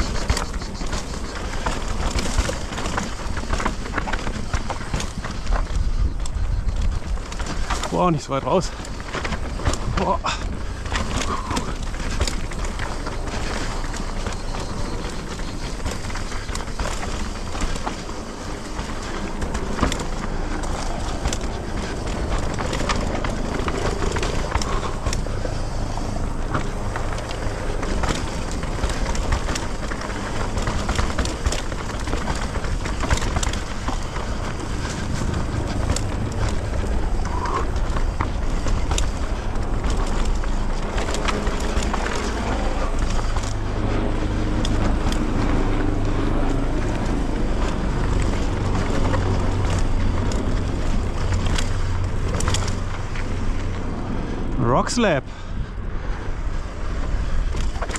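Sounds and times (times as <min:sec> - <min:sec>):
bike clicks and rattles: 0:00.0 - 0:57.9
bike tyres rolling over rocks: 0:00.0 - 0:57.9
wind on microphone: 0:04.9 - 0:07.4.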